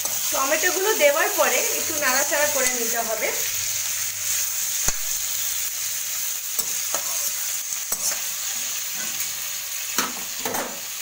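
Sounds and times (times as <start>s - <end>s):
tomatoes sizzling in hot oil: 0.0s - 11.0s
metal spatula scraping a pan: 6.5s - 9.4s.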